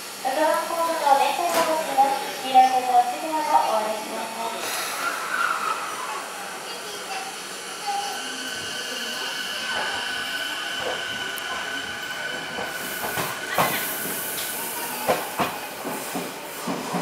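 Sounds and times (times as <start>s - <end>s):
electric train high-pitched whine: 4.2s - 15.9s.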